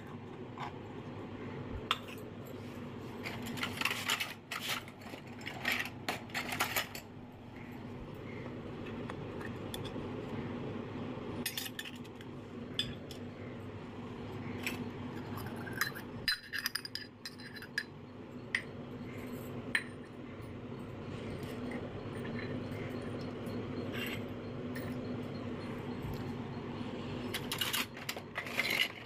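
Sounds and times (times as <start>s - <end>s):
steady low hum: 0.0s - 29.0s
toy metal dishes clinking: 1.8s - 2.6s, 3.2s - 7.9s, 8.9s - 10.1s, 11.4s - 13.4s, 14.5s - 26.6s, 27.2s - 29.0s.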